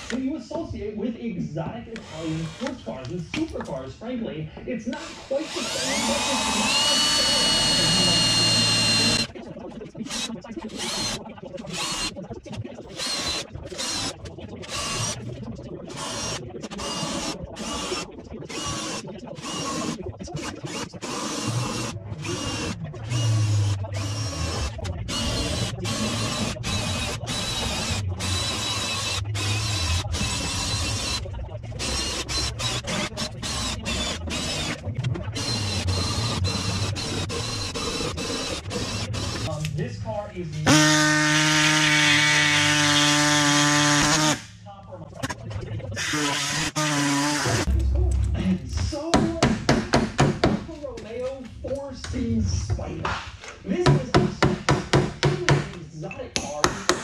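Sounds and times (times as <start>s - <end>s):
power drill boring sheet metal: 0.0s - 0.2s, 1.9s - 3.1s, 4.9s - 9.3s, 10.0s - 12.2s, 12.8s - 15.2s, 15.8s - 39.6s, 40.6s - 44.5s, 46.0s - 47.7s.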